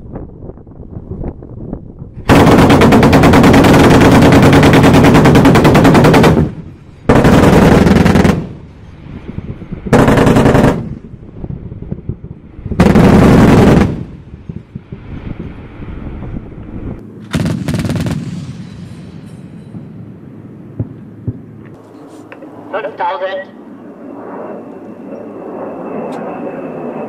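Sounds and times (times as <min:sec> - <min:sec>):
autocannon bursts firing: 0:02.3 - 0:08.6, 0:09.9 - 0:11.0, 0:12.8 - 0:14.1, 0:17.3 - 0:18.4.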